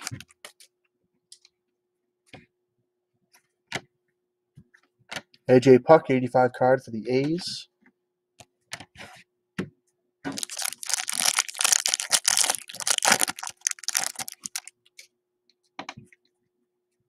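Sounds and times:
foil wrapper tearing and crinkling: 0.0s - 0.2s, 10.3s - 14.7s.

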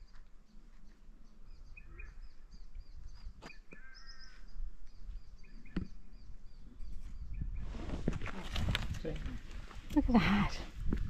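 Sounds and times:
small birds chirping: 0.0s - 8.2s
wind rumble on microphone: 4.9s - 11.0s.

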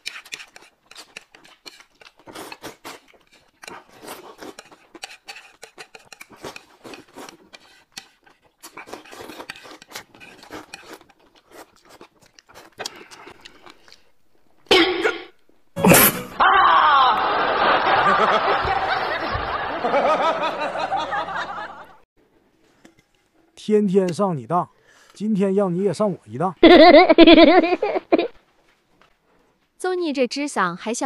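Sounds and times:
noodles slurped and chewed: 0.0s - 14.1s.

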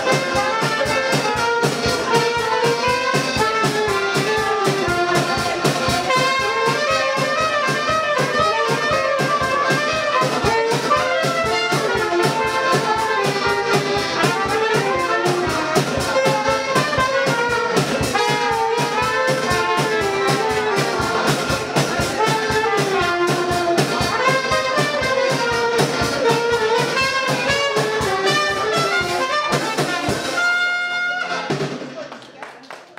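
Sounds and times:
drum kit beat: 0.0s - 32.1s
folk dance band playing: 0.0s - 32.2s.

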